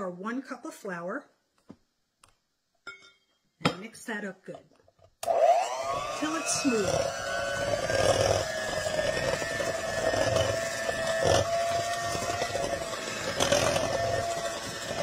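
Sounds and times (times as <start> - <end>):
electric hand mixer whining: 5.2 - 15.0
mixer beaters knocking: 5.9 - 15.0.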